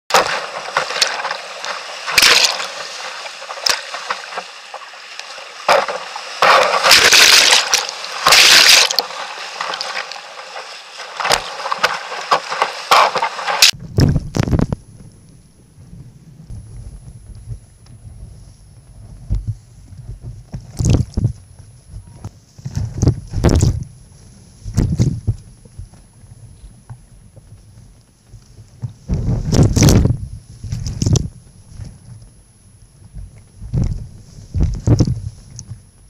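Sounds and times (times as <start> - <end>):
water splashing on bow: 0.1 - 13.8
whitewater rushing: 0.1 - 13.8.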